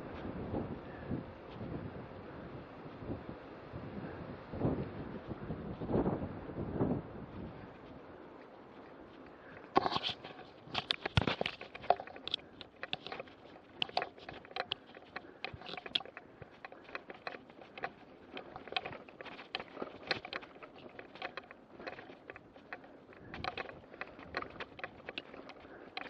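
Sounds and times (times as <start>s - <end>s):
tyre and wind noise: 0.0s - 26.0s
bike rattling and clattering: 9.0s - 26.0s.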